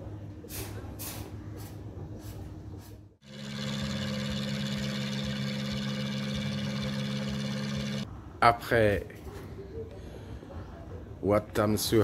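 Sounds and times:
boat engine droning: 3.2 - 8.0.

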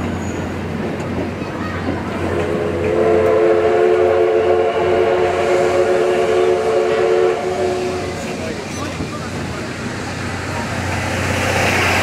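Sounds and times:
train coaches rumbling by: 0.0 - 12.0
steam locomotive whistle: 2.3 - 8.3.

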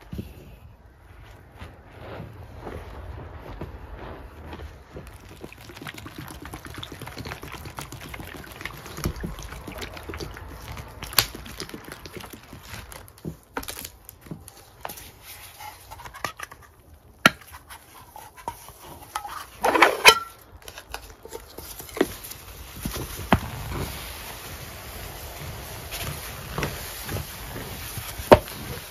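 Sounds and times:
wet paste squelching: 4.8 - 14.0.

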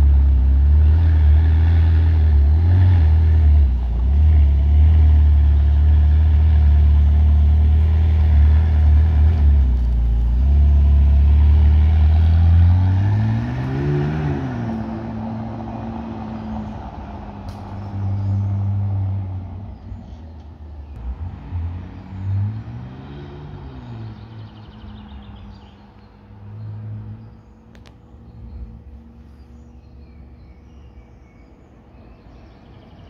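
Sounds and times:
sports car engine driving off: 0.0 - 19.5.

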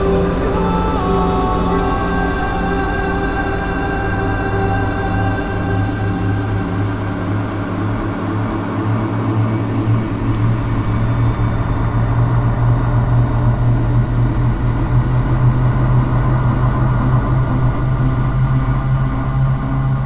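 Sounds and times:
low rumbling drone: 0.0 - 20.0.

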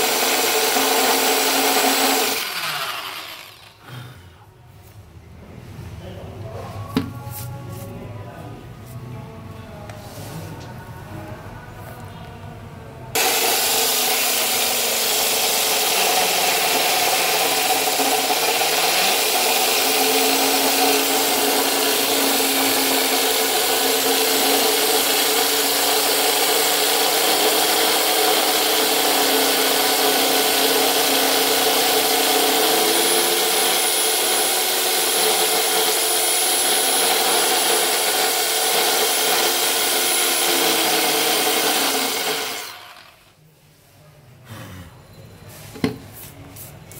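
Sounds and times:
drill grinding into stone: 0.0 - 3.8, 13.2 - 43.2.

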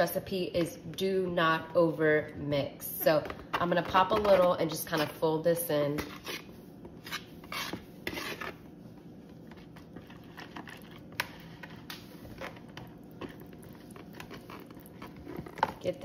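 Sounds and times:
whisk scraping bowl: 6.0 - 16.0.

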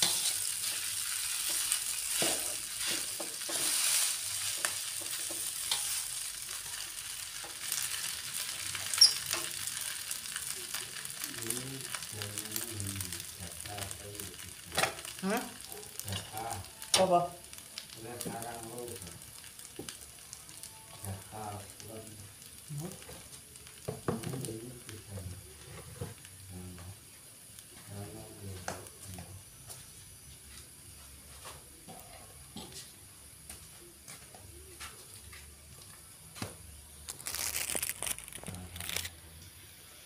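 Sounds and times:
metal spatula scraping a pan: 0.0 - 6.8
rice sizzling in a wok: 0.0 - 40.0.

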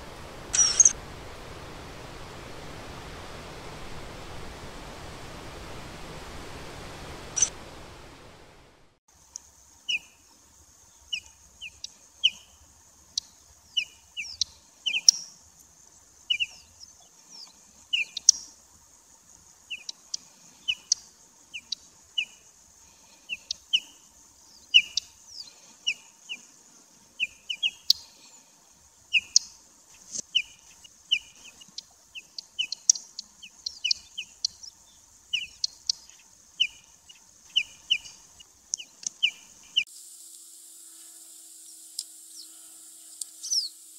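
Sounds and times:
bird calling with whistles and ticks: 0.5 - 1.0, 11.1 - 15.4, 16.3 - 18.5, 23.3 - 26.5, 29.1 - 39.9, 41.6 - 43.9.

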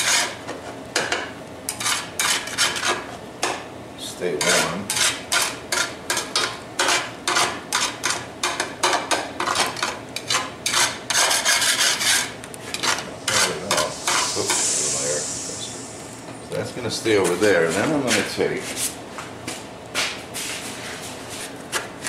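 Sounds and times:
metal spatula scraping frying pan: 0.0 - 0.4, 10.2 - 14.5
food sizzling in pan: 12.6 - 16.6.

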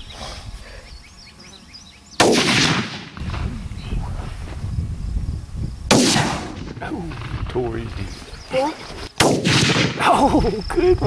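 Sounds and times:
rifle shots: 2.2 - 3.5, 5.9 - 8.0, 9.2 - 10.1.

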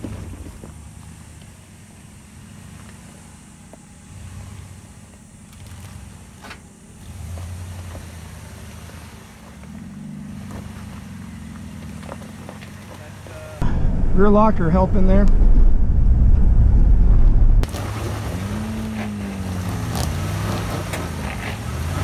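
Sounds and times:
truck knocking over rocks: 0.0 - 0.8
pickup engine at low revs: 0.0 - 22.0.

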